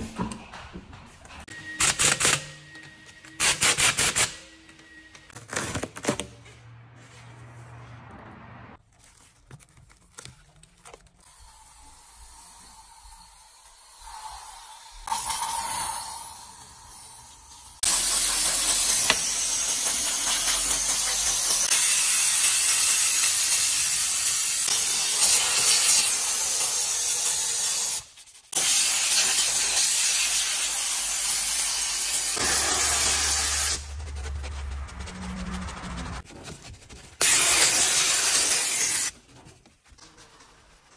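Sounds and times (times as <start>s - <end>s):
steam cleaner jet hissing: 11.6s - 33.8s
brushing: 32.3s - 40.9s.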